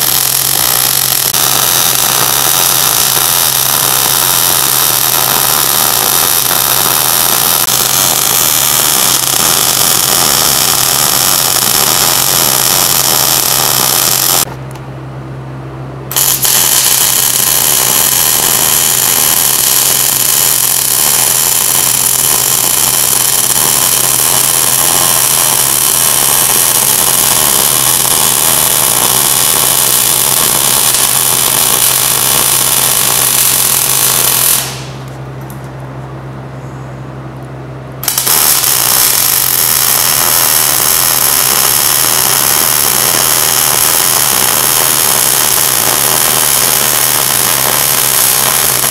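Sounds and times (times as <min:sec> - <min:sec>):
welding arc crackling: 0:00.0 - 0:14.8, 0:16.1 - 0:35.2, 0:38.0 - 0:48.9
steady low hum: 0:00.0 - 0:44.7.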